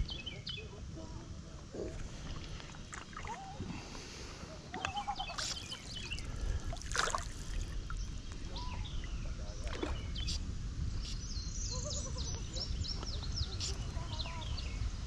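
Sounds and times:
river water trickling and lapping: 1.8s - 10.5s
bird chirps: 4.8s - 6.3s, 8.0s - 10.4s.

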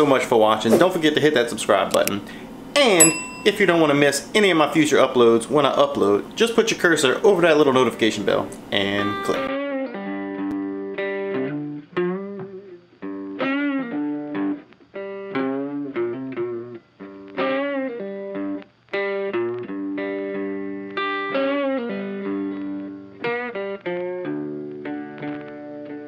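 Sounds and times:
guitar playing melodic riff: 3.0s - 4.1s, 8.8s - 26.0s.

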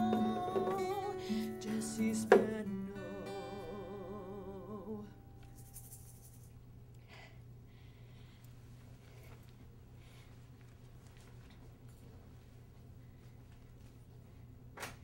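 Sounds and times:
woman singing: 0.0s - 5.2s
acoustic guitar strumming: 0.0s - 5.6s.

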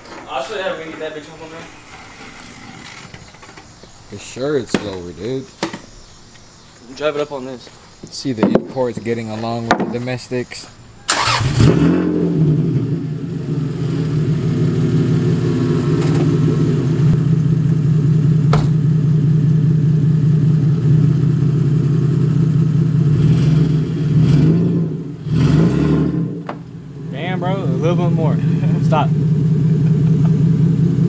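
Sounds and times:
car engine idling: 10.3s - 31.0s
engine revving: 11.1s - 17.9s, 21.8s - 31.0s.

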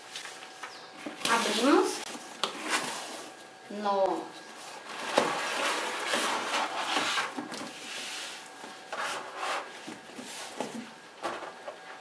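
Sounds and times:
plastic scraping against cardboard: 4.8s - 12.0s.

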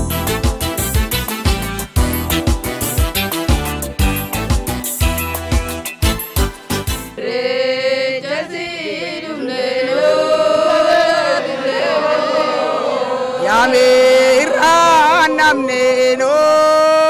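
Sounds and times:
voices chanting a wavering melody: 7.1s - 17.0s.

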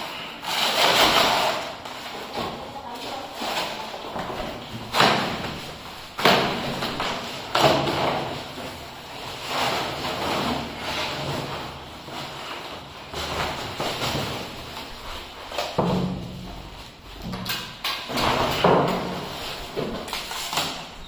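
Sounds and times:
cardboard tearing: 0.4s - 2.1s
cardboard rustling and scraping: 0.4s - 17.0s, 18.1s - 21.0s.

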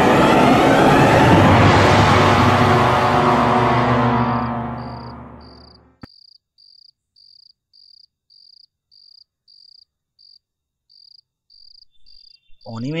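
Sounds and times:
dark ominous music: 0.0s - 6.1s
cricket chirping: 4.8s - 12.9s.

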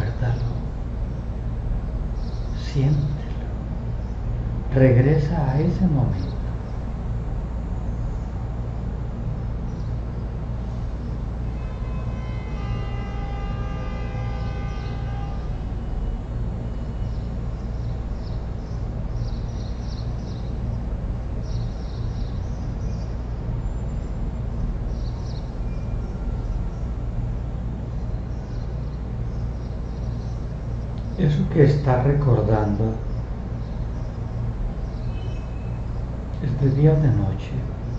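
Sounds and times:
room hum and hiss: 0.0s - 37.9s.

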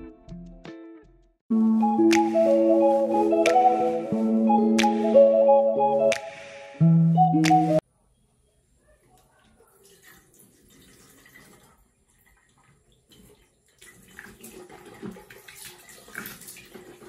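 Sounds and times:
water running from a tap: 9.8s - 17.0s.

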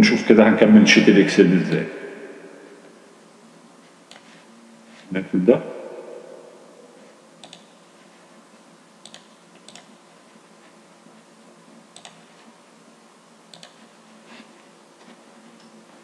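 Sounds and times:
faint room hum: 0.0s - 16.0s
computer mouse double clicks: 7.4s - 7.7s, 9.0s - 9.9s, 13.5s - 13.8s.

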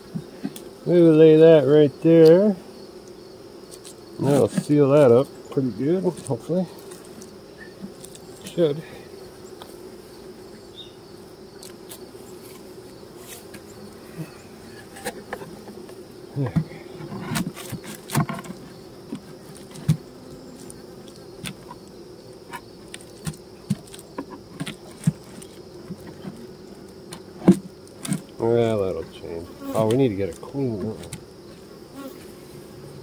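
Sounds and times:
honey bees buzzing: 0.0s - 33.0s
wooden knocks and scrapes: 14.7s - 20.1s, 22.5s - 26.5s.

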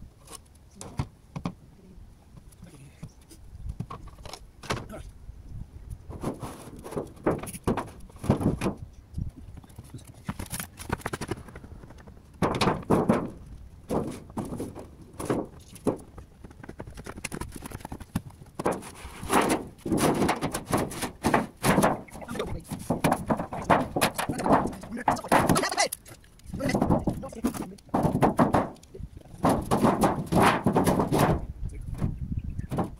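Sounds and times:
sheet-metal gutter clattering: 6.1s - 8.8s, 12.3s - 16.2s, 17.3s - 32.9s
footsteps on roof tiles: 6.1s - 32.9s.

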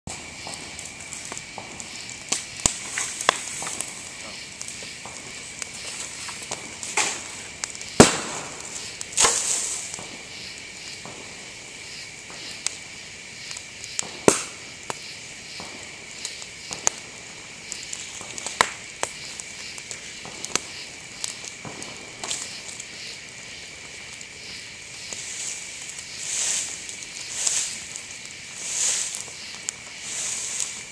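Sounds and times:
bamboo segments bursting with pops: 0.1s - 11.2s, 13.6s - 15.0s
campfire crackling: 0.1s - 30.9s.

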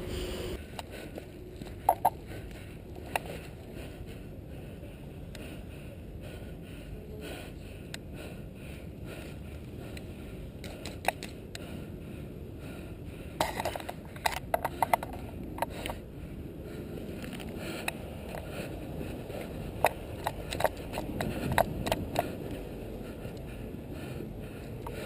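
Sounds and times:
steady rushing noise: 0.0s - 25.0s.

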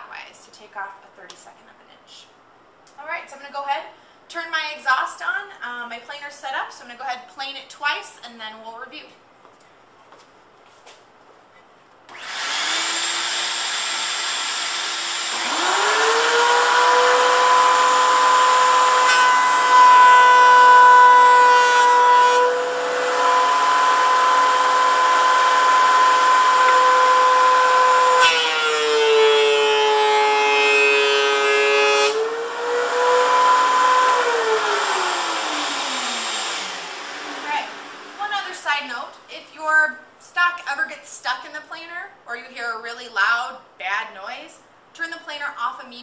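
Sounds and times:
thickness planer whining: 12.1s - 38.3s
shop vacuum running: 12.1s - 38.6s.

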